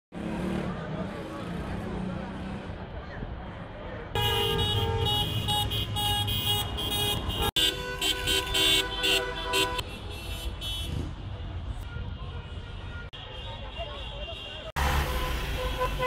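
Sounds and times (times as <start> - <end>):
engine and traffic noise: 0.1 - 16.0
car horns honking: 4.2 - 16.0.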